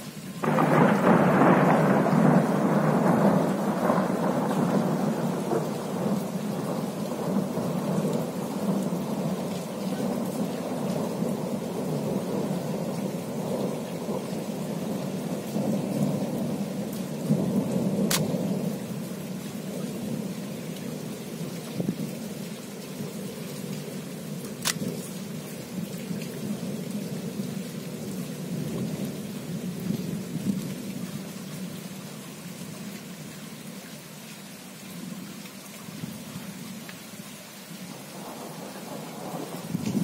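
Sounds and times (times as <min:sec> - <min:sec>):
rain falling: 0:00.0 - 0:40.0
thunder rumbling: 0:00.4 - 0:19.1, 0:38.1 - 0:40.0
sharp click: 0:18.1 - 0:18.3, 0:24.6 - 0:24.8.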